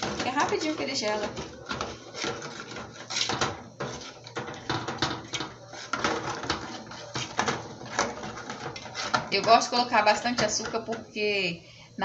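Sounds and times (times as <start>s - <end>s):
metal spoon scraping pan: 0.0s - 11.3s.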